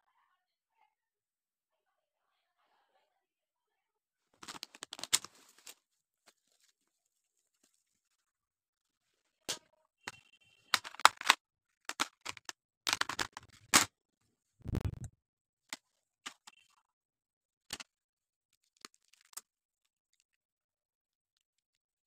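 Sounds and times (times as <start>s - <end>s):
plastic stationery clicking: 10.8s - 13.9s.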